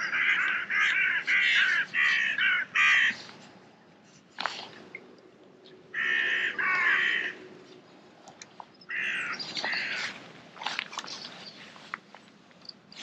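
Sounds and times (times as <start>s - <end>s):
crow cawing: 0.0s - 3.2s, 5.9s - 7.4s, 8.9s - 10.1s
faint clicks of tackle: 4.3s - 5.8s, 9.6s - 13.0s.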